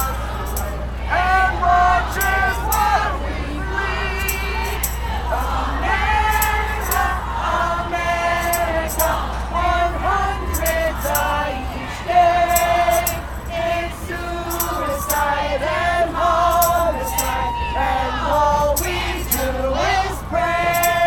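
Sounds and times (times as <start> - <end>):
light jingling: 0.0 - 1.0, 4.0 - 7.2, 8.4 - 9.3, 10.4 - 11.5, 12.4 - 13.6, 14.4 - 15.4, 16.5 - 17.5, 18.5 - 21.0
women singing in unison: 0.0 - 21.0.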